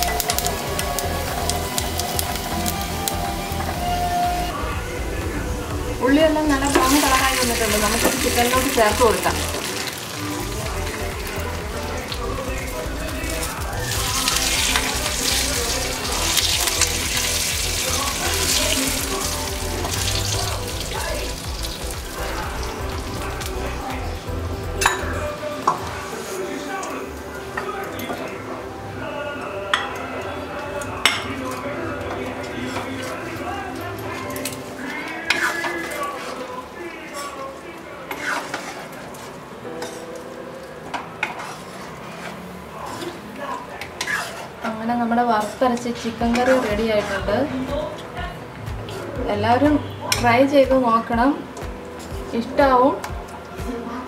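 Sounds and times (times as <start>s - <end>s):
hot oil sizzling: 0.0s - 54.0s
spoon scraping and knocking pan: 34.1s - 36.5s, 38.1s - 40.1s, 41.0s - 44.8s, 45.4s - 47.3s.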